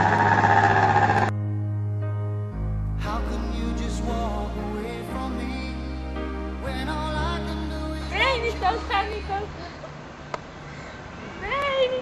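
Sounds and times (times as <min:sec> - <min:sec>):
melody over low bass: 0:00.0 - 0:09.5.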